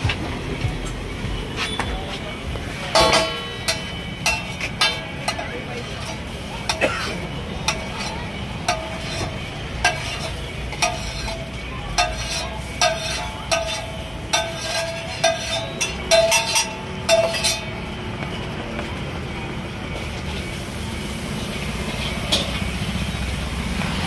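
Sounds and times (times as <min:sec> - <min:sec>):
metal spatula scraping griddle: 0:01.5 - 0:17.8
metallic ring from griddle: 0:02.8 - 0:06.4, 0:07.7 - 0:17.7.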